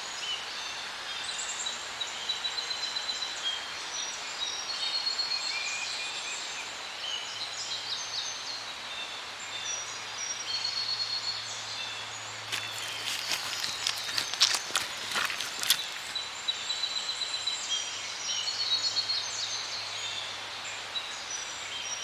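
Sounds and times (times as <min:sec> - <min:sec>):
sharp clicks or rustles: 0:12.5 - 0:16.2.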